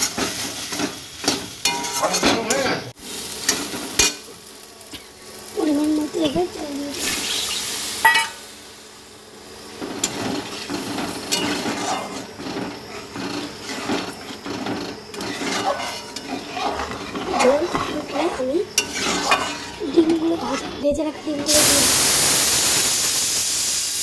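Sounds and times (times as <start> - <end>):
metal spatula scraping a pot: 1.6 - 2.5, 10.0 - 20.8.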